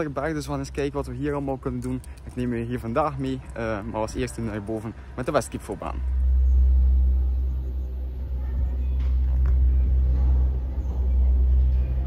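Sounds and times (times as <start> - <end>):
gondola cabin rumble: 0.0 - 12.0.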